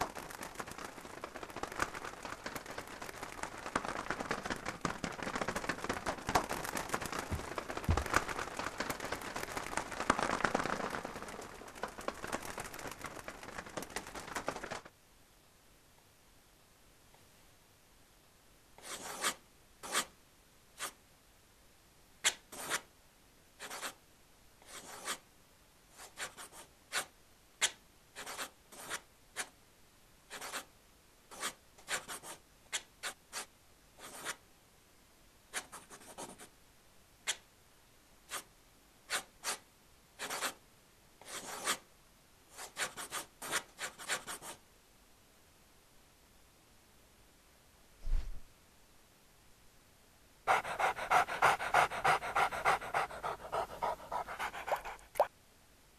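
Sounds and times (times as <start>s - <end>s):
paintbrush strokes on wall: 0.0s - 14.6s, 18.8s - 20.1s, 24.6s - 25.2s.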